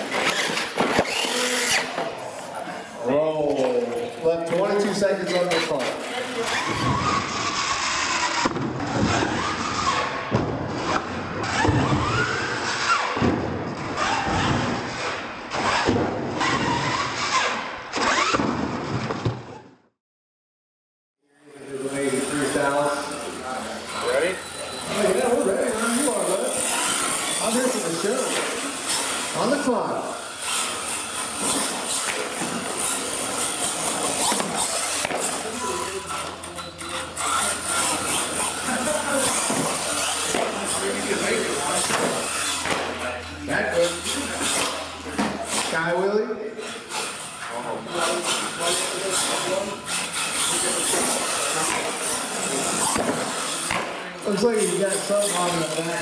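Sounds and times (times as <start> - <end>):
electric motor whining: 0.0 - 2.2, 21.6 - 56.0
tire noise: 0.0 - 19.6, 21.5 - 56.0
indistinct spectator chatter: 21.5 - 56.0.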